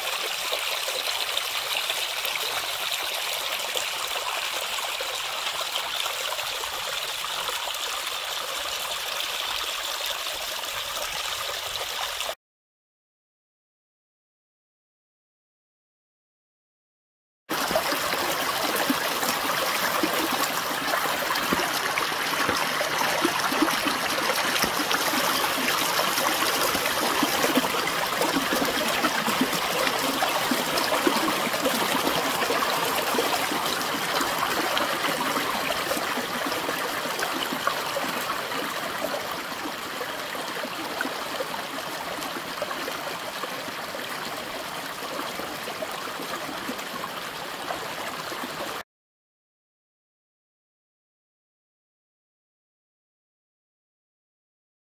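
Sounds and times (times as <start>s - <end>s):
brook splashing over stones: 17.5s - 48.8s.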